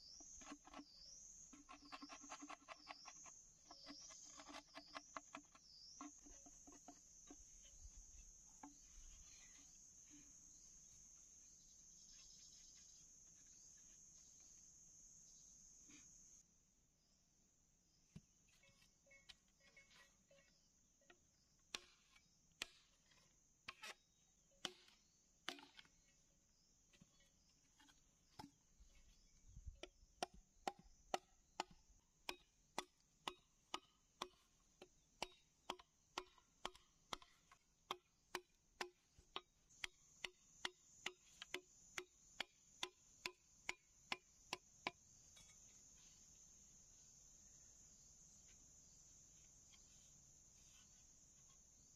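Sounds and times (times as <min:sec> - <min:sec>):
machete chopping bamboo: 0:22.6 - 0:22.8, 0:25.5 - 0:25.8, 0:29.9 - 0:45.0.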